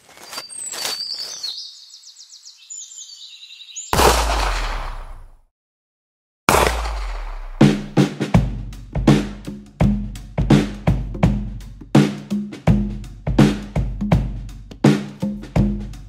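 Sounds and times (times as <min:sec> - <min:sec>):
birds chirping: 0:00.3 - 0:05.3
pistol shot: 0:04.0 - 0:05.4, 0:06.5 - 0:08.0
heavy boom: 0:06.5 - 0:08.0
drum-led music: 0:06.5 - 0:16.0.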